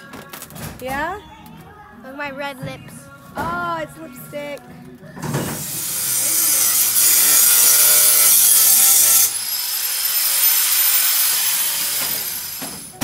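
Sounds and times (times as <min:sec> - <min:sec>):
angle grinder grinding metal: 0:05.5 - 0:13.0
grinder whining spinning freely: 0:05.6 - 0:13.0.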